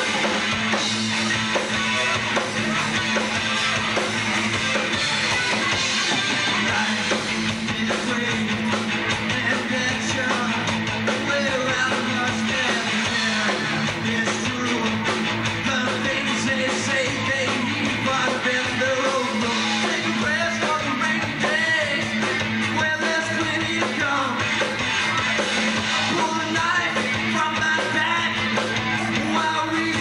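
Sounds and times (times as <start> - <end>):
bass guitar: 0.0 - 30.0
drums: 0.0 - 30.0
electric guitars: 0.0 - 30.0
man singing: 6.3 - 30.0.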